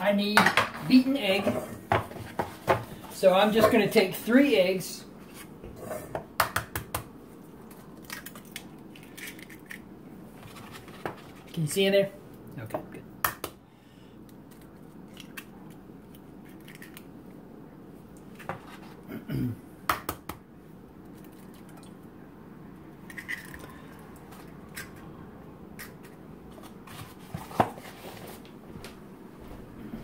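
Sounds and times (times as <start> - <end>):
eggshells cracking against metal bowl: 7.6 - 9.9, 14.3 - 17.1, 23.0 - 25.1.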